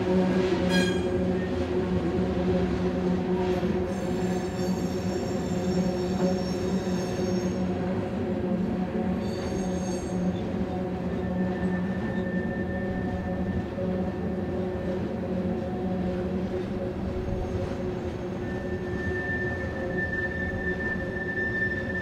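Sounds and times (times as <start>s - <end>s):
train wheels droning on rail: 0.0s - 22.0s
high-pitched wheel squeals: 18.2s - 22.0s.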